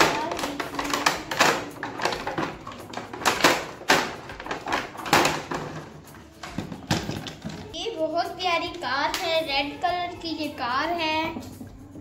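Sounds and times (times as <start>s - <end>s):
plastic packaging crackling: 0.0s - 5.9s.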